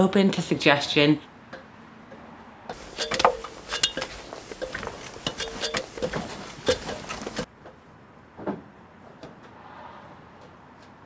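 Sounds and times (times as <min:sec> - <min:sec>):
metallic clicks on stepladder: 0:02.7 - 0:07.5.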